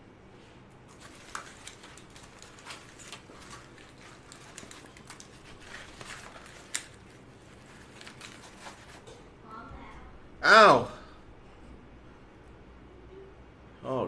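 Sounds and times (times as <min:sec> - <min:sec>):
headphones and hat rustling: 0:00.8 - 0:09.1.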